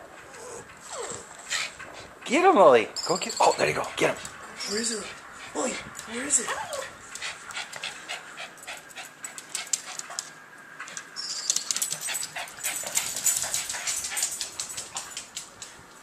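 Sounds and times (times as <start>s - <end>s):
small dog whimpering: 0.3s - 1.3s, 6.4s - 7.0s
rapid animal chirping: 3.0s - 4.0s.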